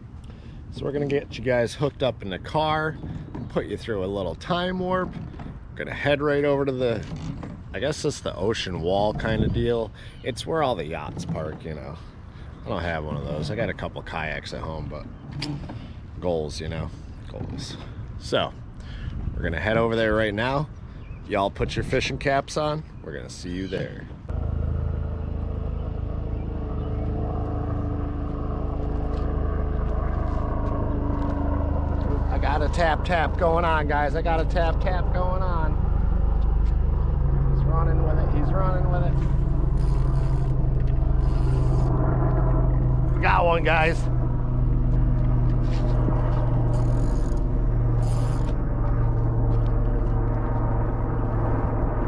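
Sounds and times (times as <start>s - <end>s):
engine idling: 24.3s - 52.0s
fishing reel whirring: 39.4s - 42.8s, 46.4s - 48.6s.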